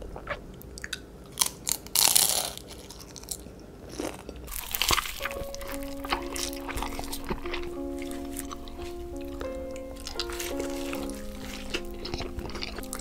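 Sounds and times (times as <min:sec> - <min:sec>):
fried food crunching: 0:00.0 - 0:13.0
mouth chewing: 0:00.0 - 0:13.0
background music: 0:04.5 - 0:13.0.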